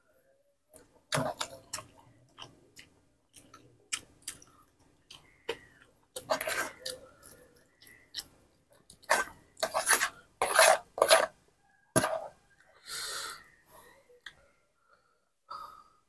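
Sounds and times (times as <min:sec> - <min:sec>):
chewing: 0:00.8 - 0:10.1
metal spoon scraping a plate: 0:06.2 - 0:06.8, 0:09.1 - 0:11.3.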